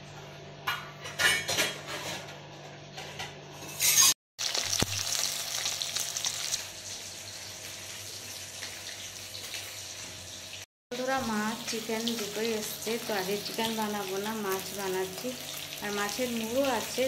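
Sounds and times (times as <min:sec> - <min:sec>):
fish sizzling in hot oil: 0:04.4 - 0:17.0.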